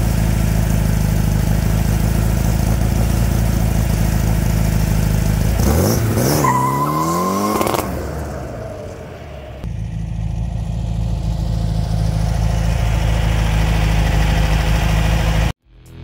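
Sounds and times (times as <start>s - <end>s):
car engine revving: 0.0s - 16.0s
turbo whistle: 6.2s - 7.9s.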